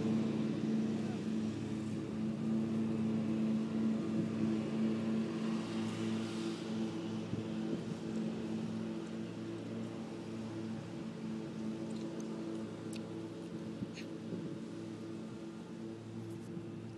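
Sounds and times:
steady motor hum: 0.0 - 16.9.

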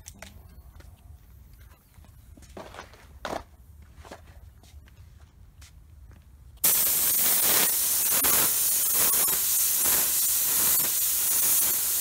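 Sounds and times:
paint spray gun hissing: 6.6 - 12.0.

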